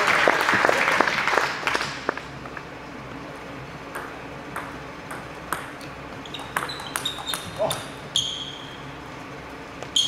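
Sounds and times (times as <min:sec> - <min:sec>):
applause: 0:00.0 - 0:02.2
table tennis ball bouncing: 0:03.9 - 0:08.4.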